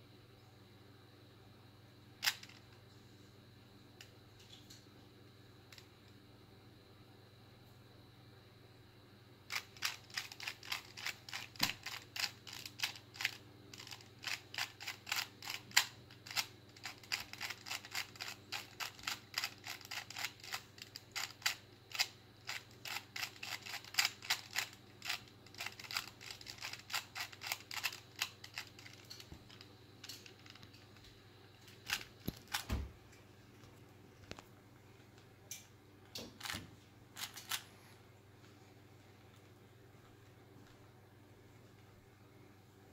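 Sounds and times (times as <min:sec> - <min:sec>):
puzzle cube clicking: 0:09.5 - 0:30.7.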